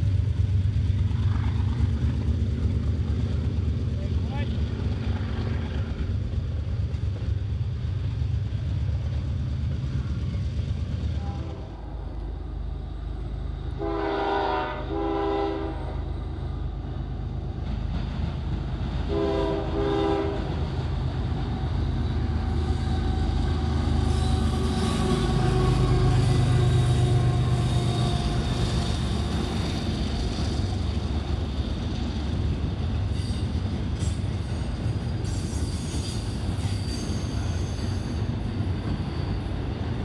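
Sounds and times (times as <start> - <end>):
diesel locomotive engines: 0.0 - 40.0
freight train cars rumbling: 0.0 - 40.0
train air horn blasts: 11.2 - 12.1, 13.7 - 16.1, 19.1 - 20.6, 24.0 - 29.4.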